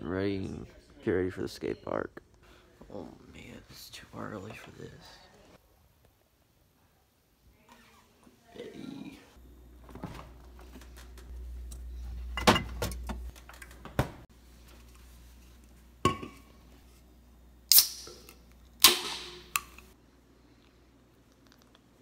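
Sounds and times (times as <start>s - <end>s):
can tab cracking open: 17.7s - 19.9s.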